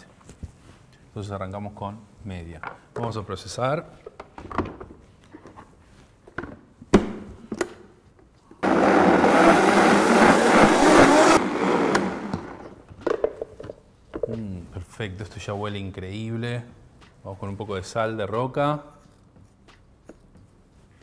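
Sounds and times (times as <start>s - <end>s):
blender running: 8.6s - 12.8s.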